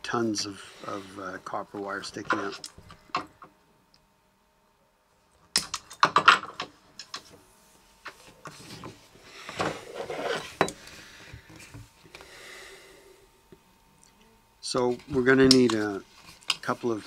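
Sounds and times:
plastic tubing rustling and scraping: 8.1 - 10.6.

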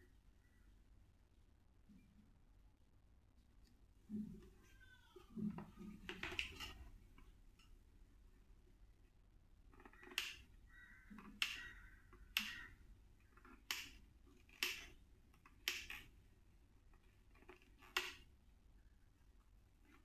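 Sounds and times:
hard plastic parts clicking: 5.4 - 7.7, 9.7 - 16.2, 16.8 - 18.3.

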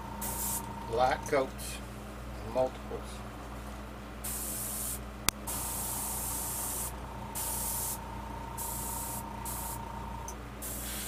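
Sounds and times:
airbrush spraying paint: 0.2 - 0.7, 4.2 - 8.0, 8.6 - 9.8, 10.6 - 11.0.

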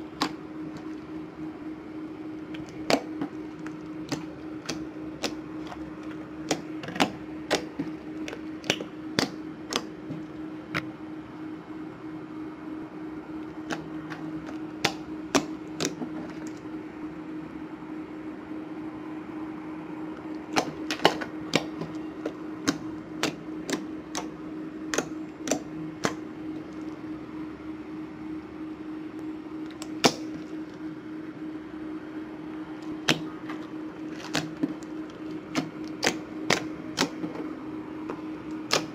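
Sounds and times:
steady hum: 0.0 - 38.9
slime clicking and popping: 2.5 - 9.9, 20.5 - 24.3, 24.9 - 26.2, 35.5 - 37.2, 38.7 - 38.9.

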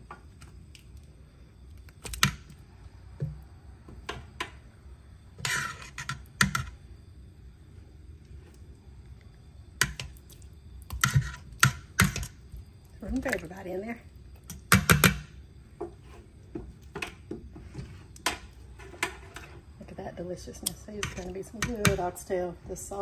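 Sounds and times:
tongs scraping pot: 5.4 - 6.7, 20.6 - 22.0.

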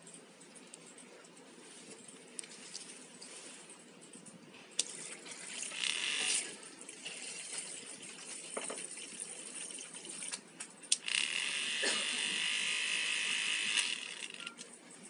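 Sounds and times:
electric brush cleaner spinning: 5.6 - 6.5, 11.0 - 14.5.

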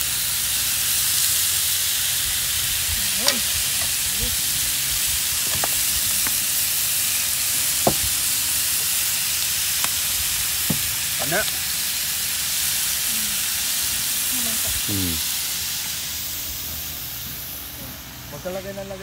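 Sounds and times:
meat sizzling on grill pan: 0.0 - 19.0.

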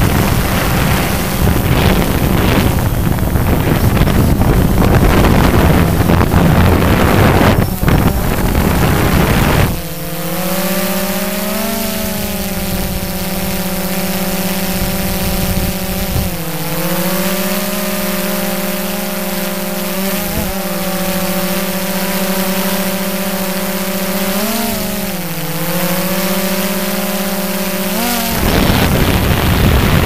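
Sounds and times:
loud rush of wind: 0.0 - 9.9, 28.3 - 30.0
low drone with overtones: 0.0 - 30.0.

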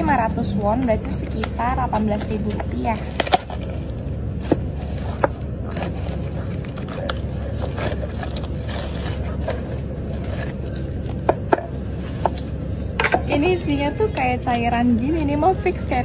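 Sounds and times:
low background hum: 0.0 - 16.0
plastic wrap crinkling and scraping: 1.2 - 12.6.

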